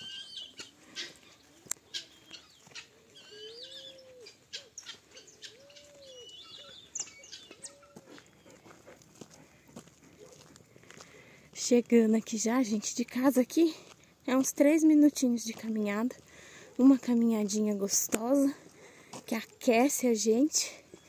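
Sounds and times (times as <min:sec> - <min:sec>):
low hooting calls: 0:00.0 - 0:08.7
birds chirping: 0:00.0 - 0:10.4, 0:15.2 - 0:21.0.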